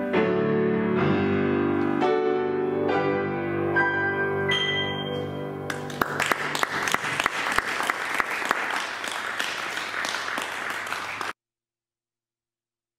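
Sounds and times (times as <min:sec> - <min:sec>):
audience applauding: 0:05.7 - 0:11.4.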